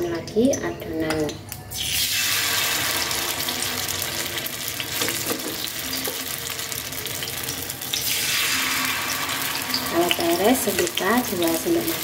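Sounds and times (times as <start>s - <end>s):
batter sizzling in hot oil: 1.6s - 12.0s.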